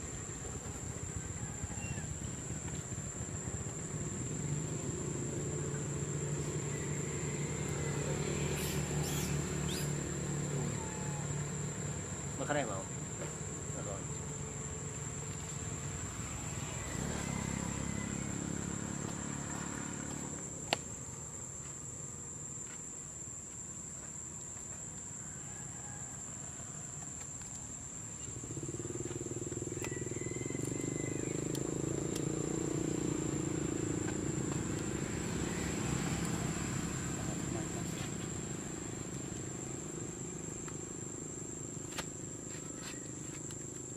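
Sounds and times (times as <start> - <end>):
high-pitched insect drone: 0.0 - 20.6.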